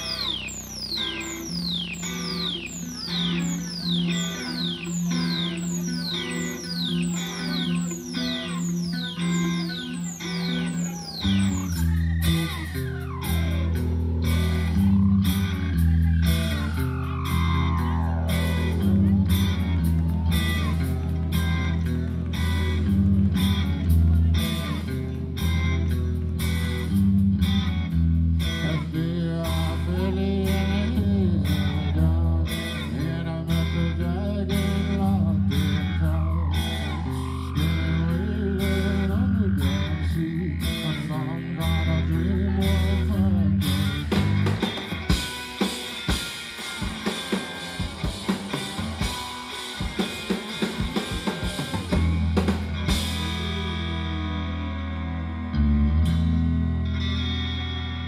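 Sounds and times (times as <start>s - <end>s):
swooping tone: 0.0s - 23.6s, 36.0s - 42.6s
live rock band playing: 0.0s - 58.0s.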